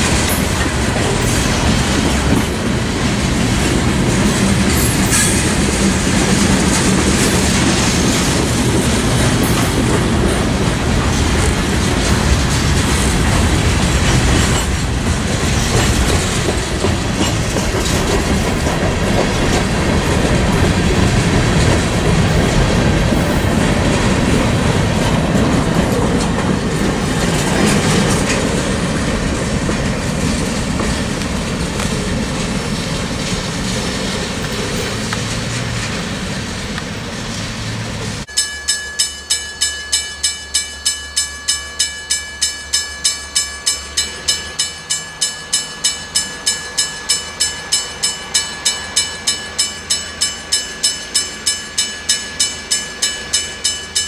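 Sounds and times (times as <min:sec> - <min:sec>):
clickety-clack over rail joints: 0:00.0 - 0:38.3
train wheels rumbling on rails: 0:00.0 - 0:54.0
crossing bell ringing: 0:38.2 - 0:54.0.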